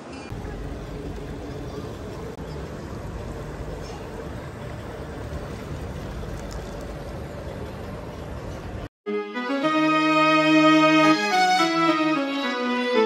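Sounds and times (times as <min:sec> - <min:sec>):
boat engine rumbling: 0:00.0 - 0:08.9.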